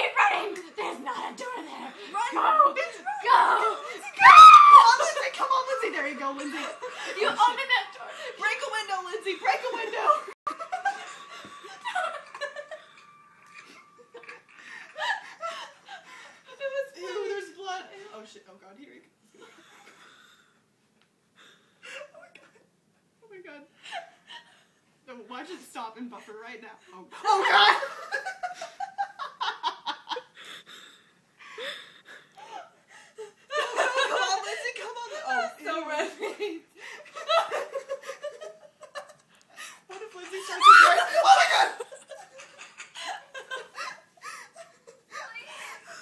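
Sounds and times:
women laughing: 2.1s - 8.7s, 9.4s - 17.5s, 33.2s - 46.0s
woman laughing: 39.9s - 46.0s.

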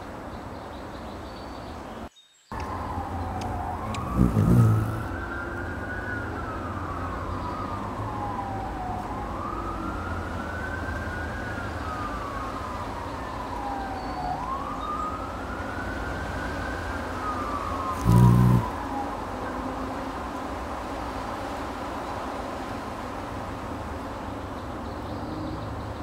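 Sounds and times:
emergency vehicle siren wailing: 2.5s - 21.0s.

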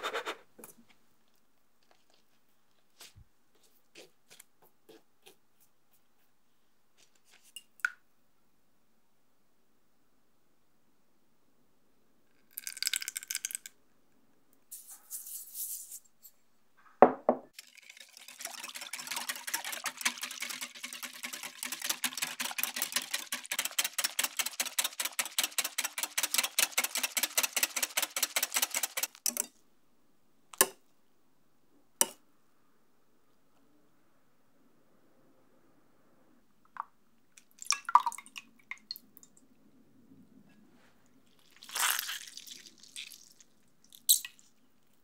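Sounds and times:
knock: 17.0s - 17.5s.

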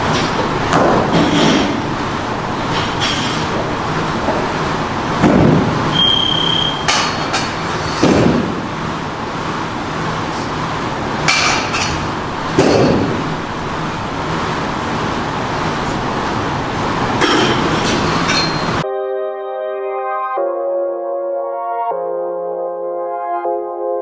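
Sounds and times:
fan whooshing: 0.0s - 18.8s.

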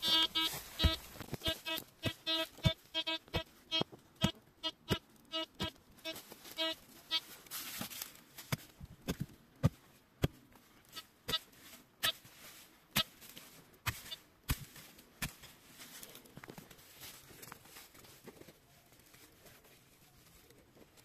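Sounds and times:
short electronic beeps: 0.0s - 3.9s, 4.6s - 7.2s.

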